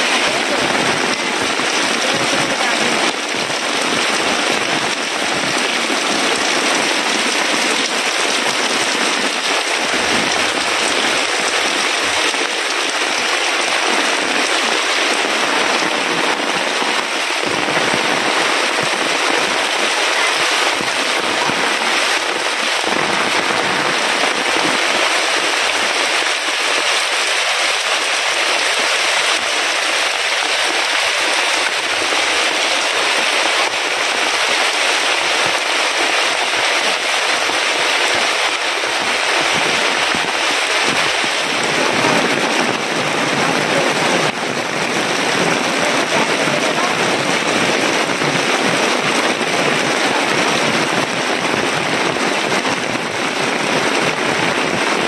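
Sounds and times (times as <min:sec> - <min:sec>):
heavy rain falling: 0:00.0 - 0:55.0.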